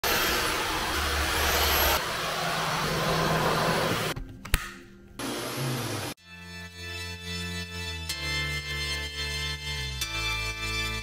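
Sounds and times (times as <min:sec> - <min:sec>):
vacuum cleaner running: 0:00.0 - 0:04.2, 0:05.2 - 0:06.2.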